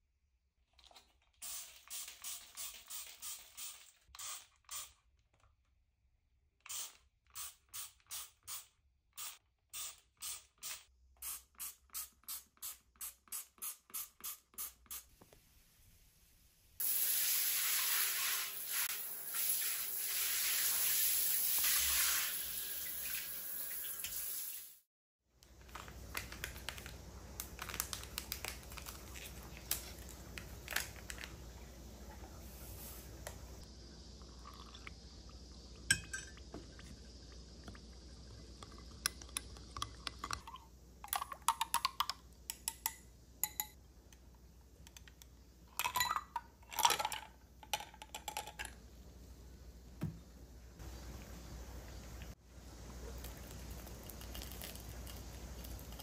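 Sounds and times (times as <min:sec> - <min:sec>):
shower spraying on tiles and glass: 0:01.3 - 0:05.0, 0:06.7 - 0:24.9, 0:29.0 - 0:33.7
spray bottle spritzing: 0:01.4 - 0:05.0, 0:06.7 - 0:15.1, 0:16.8 - 0:22.7
glass and spoon clinking: 0:35.9 - 0:36.4, 0:42.7 - 0:43.8, 0:45.8 - 0:47.2.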